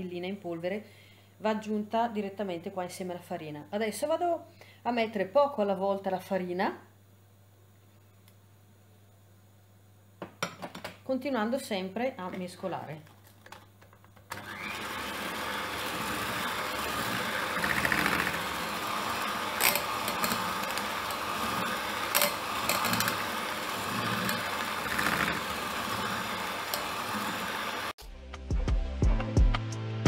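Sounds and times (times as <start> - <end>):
electric hand mixer running: 14.3 - 28.0.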